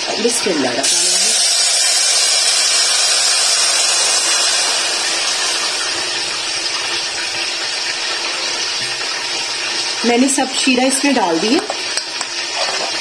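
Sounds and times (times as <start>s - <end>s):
syrup sizzling in hot pan: 0.0s - 13.0s.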